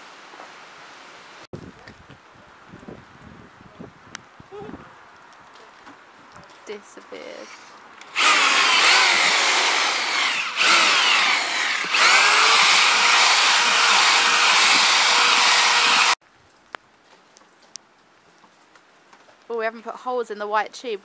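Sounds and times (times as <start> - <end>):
electric paddle mixer whining: 8.1 - 16.2.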